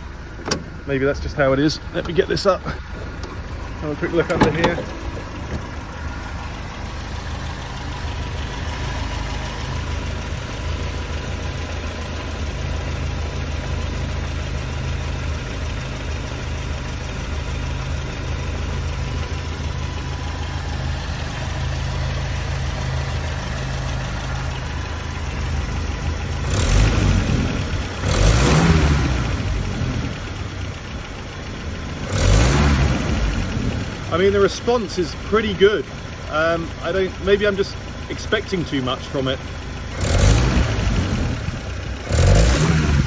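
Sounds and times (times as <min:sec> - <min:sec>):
car engine idling: 0:00.0 - 0:43.0
engine revving: 0:17.7 - 0:30.9, 0:31.8 - 0:35.0, 0:38.6 - 0:43.0.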